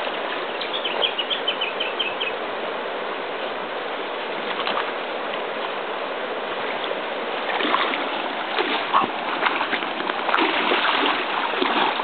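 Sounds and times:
rush of moving water: 0.0s - 12.0s
water splashing around swimming dog: 6.6s - 12.0s.

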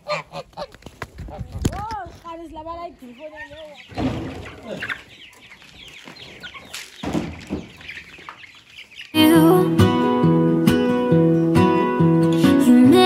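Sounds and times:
chicks peeping: 0.0s - 11.9s
acoustic guitar music: 9.1s - 13.0s.

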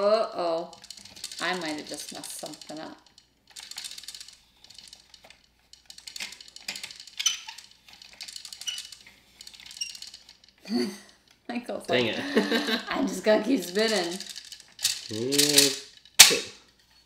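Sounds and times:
plastic gears clicking: 0.0s - 11.7s, 12.8s - 17.0s.

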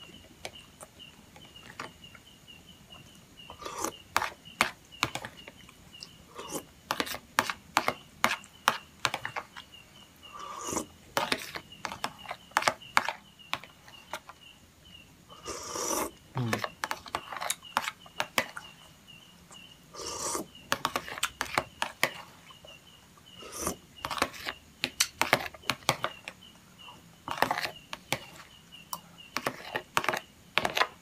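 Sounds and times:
spoon scraping plastic plate: 6.4s - 9.6s, 10.4s - 14.4s, 15.4s - 18.6s, 20.0s - 22.4s, 23.3s - 26.4s, 27.3s - 28.5s, 29.4s - 31.0s.

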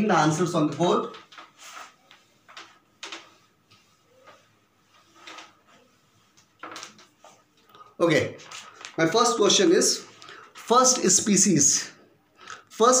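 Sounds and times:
duster swishing on whiteboard: 0.4s - 7.6s.

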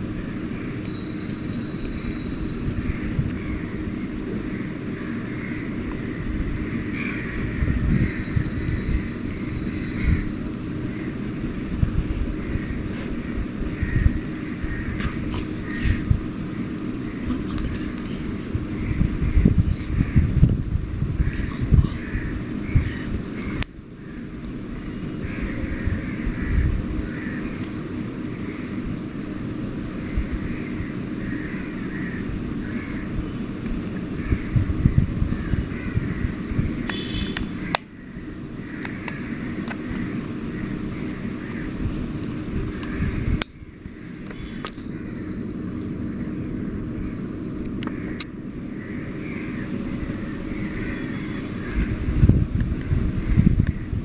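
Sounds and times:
low rumbling background noise: 0.0s - 54.0s
sharp clicks: 36.8s - 37.9s.

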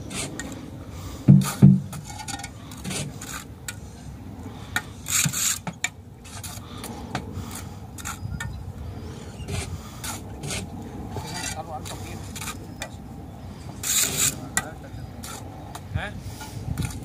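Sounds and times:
trowel scraping mortar: 1.4s - 3.8s, 5.0s - 6.8s, 9.5s - 12.8s, 13.8s - 15.4s.

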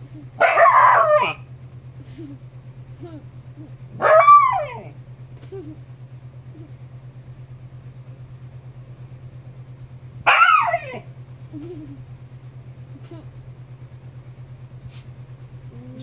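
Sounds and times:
low hum: 0.0s - 16.0s
dog whining: 0.3s - 1.4s, 3.6s - 5.8s, 10.3s - 12.0s, 15.7s - 16.0s
dog yelping bark: 0.4s - 1.4s, 4.0s - 5.0s, 10.2s - 11.1s.

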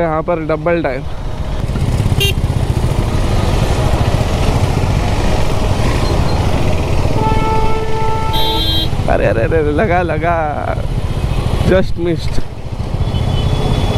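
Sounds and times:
traffic road noise: 0.0s - 13.9s
motorcycle engine running: 1.6s - 11.8s
vehicle horn honk: 2.2s - 2.4s, 7.1s - 9.0s.

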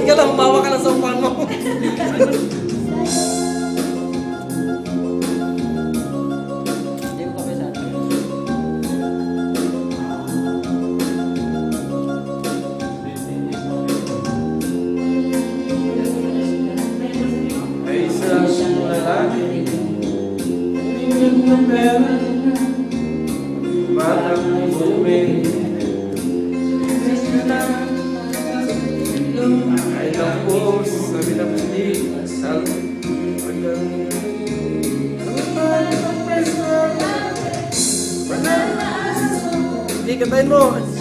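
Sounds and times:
backing track with steady beat: 0.0s - 41.0s
man singing into a microphone: 15.4s - 20.2s, 20.8s - 22.9s, 23.6s - 26.0s, 26.8s - 34.5s.

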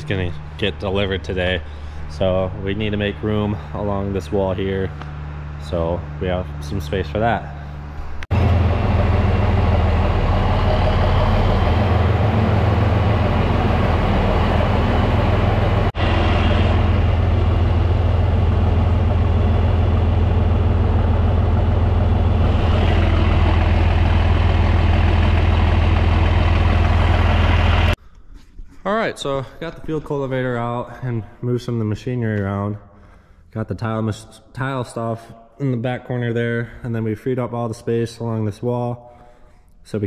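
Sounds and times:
tractor engine running: 0.0s - 28.0s.

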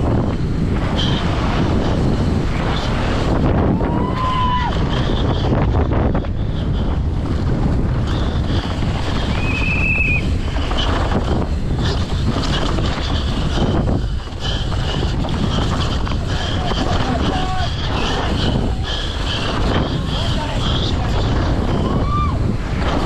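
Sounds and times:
bike rattling and knocking: 0.0s - 23.0s
rumbling bike tyres: 0.0s - 23.0s
wind rushing over microphone: 0.0s - 23.0s
high-pitched squeal: 9.0s - 11.0s.

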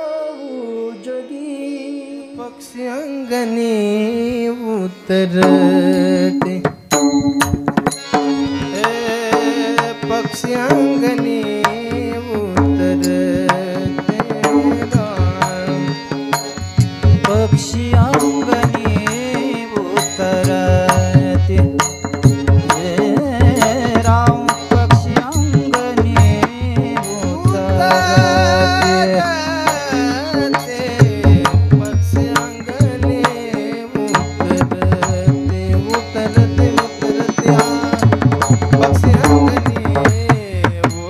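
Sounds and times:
person singing: 0.0s - 7.1s, 8.4s - 41.0s
harmonium melody: 0.0s - 41.0s
drum strokes: 6.4s - 10.9s.

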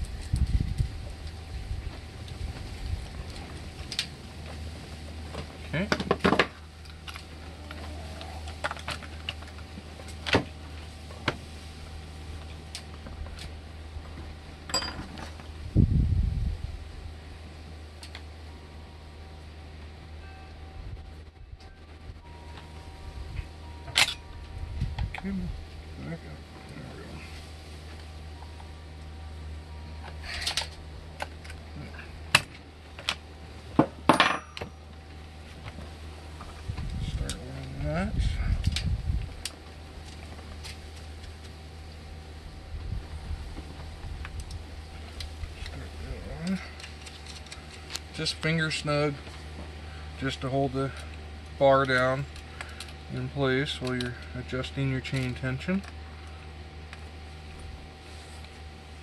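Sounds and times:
steady low hum: 0.0s - 59.0s
clicks and knocks of handled parts: 5.3s - 10.5s, 46.5s - 48.6s, 50.8s - 53.0s, 53.7s - 54.4s, 55.0s - 56.0s.

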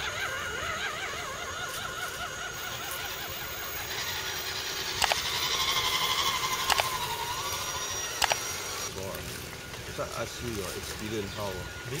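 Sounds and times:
small electric motor whining: 0.0s - 12.0s
sharp clicks: 4.8s - 7.1s, 8.0s - 8.6s.

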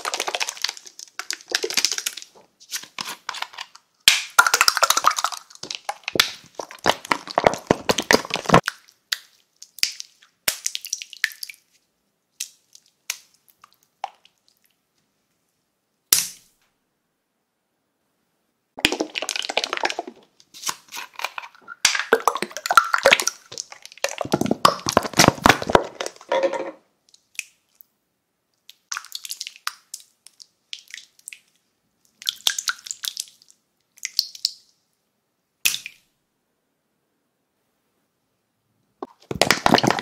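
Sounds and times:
slime squishing: 0.0s - 11.8s, 18.8s - 26.3s.

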